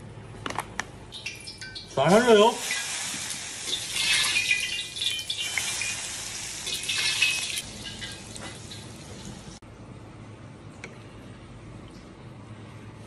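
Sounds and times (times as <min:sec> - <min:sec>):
hot oil sizzling and crackling: 0:01.1 - 0:09.6.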